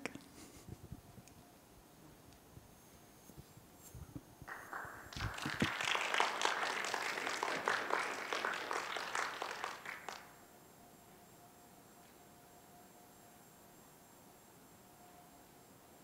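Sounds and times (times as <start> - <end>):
audience applauding: 4.5 - 10.4.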